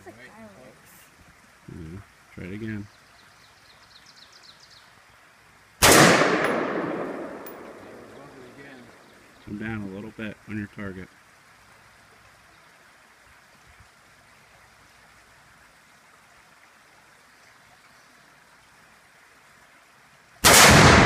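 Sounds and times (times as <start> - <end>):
faint outdoor hiss: 0.0 - 21.0
loud explosive blast echoing: 5.8 - 8.2, 20.4 - 21.0.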